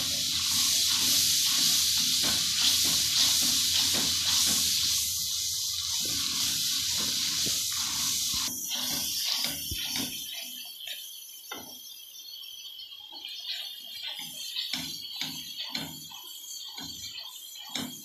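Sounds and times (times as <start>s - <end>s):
masala sizzling in oil: 0.0s - 18.0s.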